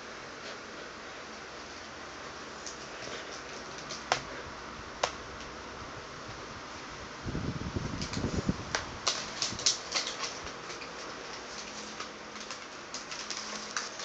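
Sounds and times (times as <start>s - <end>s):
steady background hiss: 0.0s - 14.0s
plastic packaging crackling: 2.6s - 4.3s, 7.9s - 14.0s.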